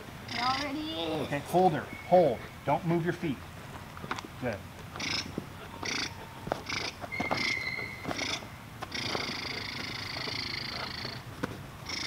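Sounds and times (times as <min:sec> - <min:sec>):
puppy whining: 0:05.0 - 0:11.2.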